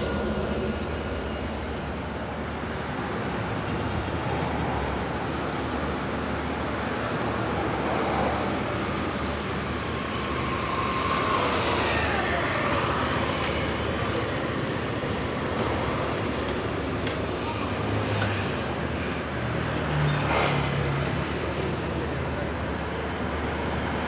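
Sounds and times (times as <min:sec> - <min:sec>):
steady road traffic: 0:00.0 - 0:24.0.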